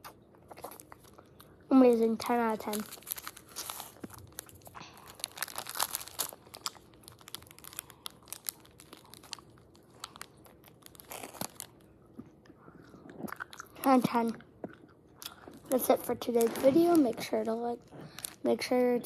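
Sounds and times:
candy wrapper crinkling and tearing: 0.4 - 12.0, 15.3 - 19.0.

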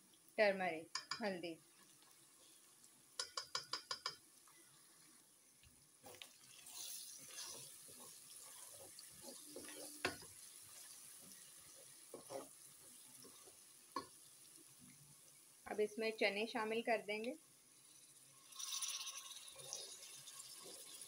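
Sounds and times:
spatula tapping and scraping pot: 0.9 - 2.0, 3.2 - 4.2, 7.3 - 10.4, 12.0 - 14.2
food sizzling in a pot: 0.9 - 5.3, 5.9 - 16.6, 17.2 - 21.0.

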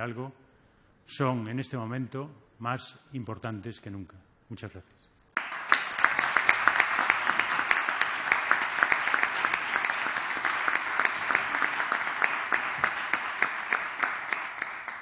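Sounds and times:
audience applauding: 5.4 - 15.0.

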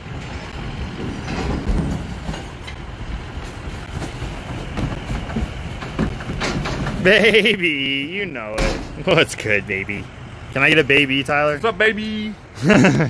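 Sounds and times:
garbage rattling into dumpster: 0.3 - 7.4.

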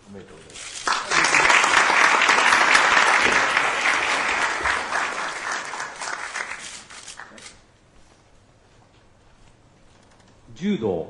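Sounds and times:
audience applauding: 0.8 - 7.4.

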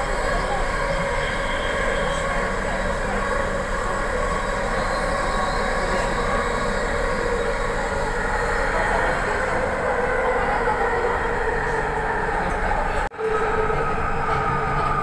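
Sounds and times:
train running noise inside carriage: 0.0 - 15.0.

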